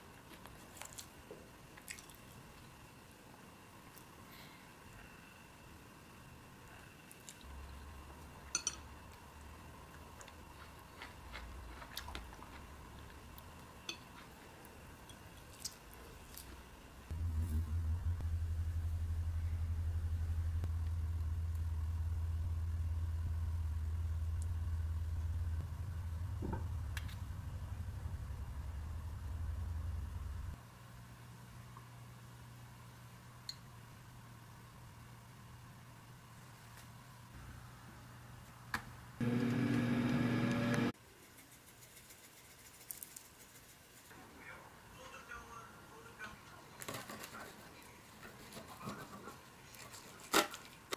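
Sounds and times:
low machine hum: 1.4s - 35.6s, 39.2s - 41.0s
kitchen appliance humming: 39.2s - 41.0s.

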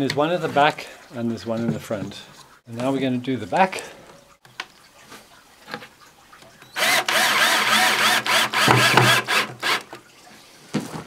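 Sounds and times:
power drill driving screw: 6.8s - 9.9s.

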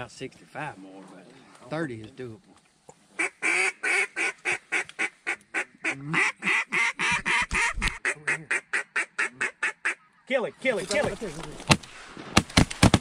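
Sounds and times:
duck call quacks: 3.2s - 10.1s.

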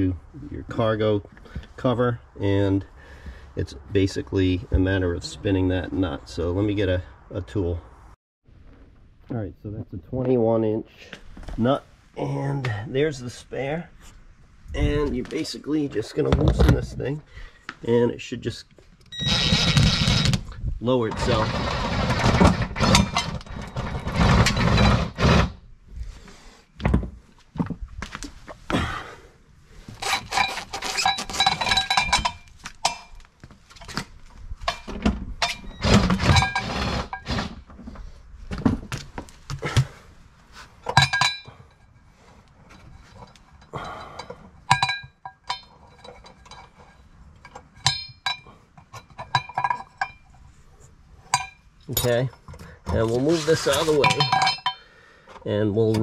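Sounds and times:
metallic clinks and knocks: 30.2s - 37.3s, 40.8s - 50.5s, 51.3s - 53.0s, 53.7s - 54.9s.

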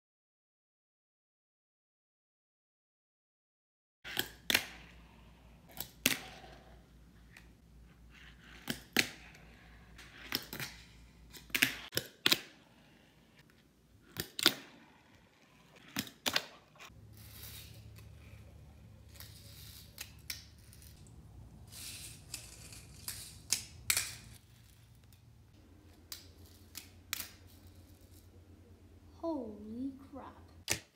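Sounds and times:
small wheels rolling hiss: 17.1s - 18.2s, 21.7s - 22.8s.

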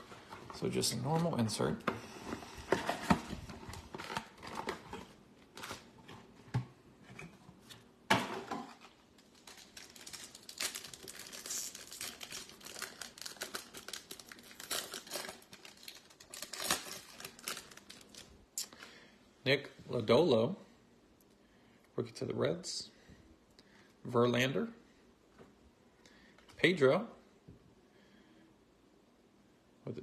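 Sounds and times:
foil wrapper crinkling and tearing: 8.8s - 18.3s.

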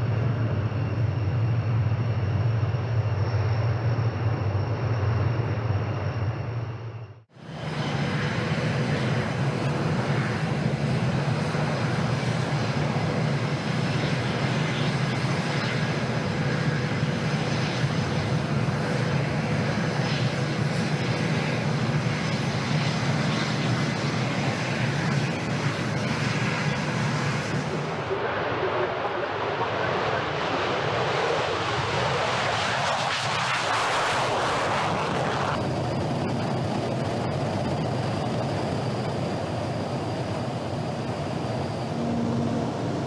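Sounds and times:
jet engines running: 0.0s - 43.0s.

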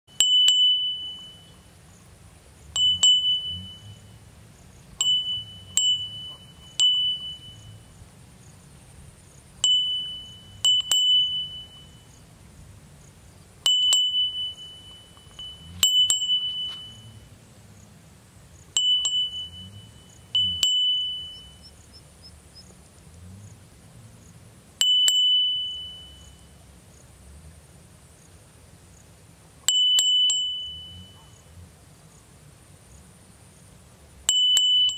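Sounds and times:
small bell dinging: 0.1s - 1.8s, 2.7s - 4.3s, 5.0s - 8.0s, 9.6s - 12.3s, 13.6s - 17.4s, 18.7s - 21.9s, 24.8s - 26.7s, 29.6s - 31.5s, 34.2s - 34.9s
faint high whine: 0.1s - 34.9s.

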